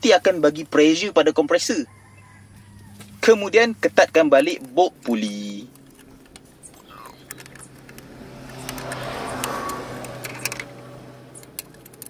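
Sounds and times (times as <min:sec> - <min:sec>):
spanner clicking: 0:04.4 - 0:12.0.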